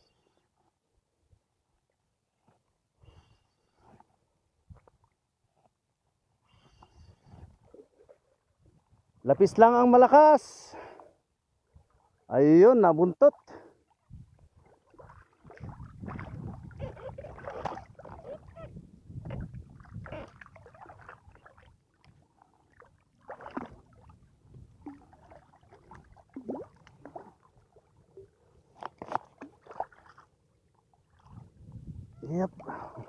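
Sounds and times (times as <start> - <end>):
seawater sloshing and splashing: 13.3 - 31.8.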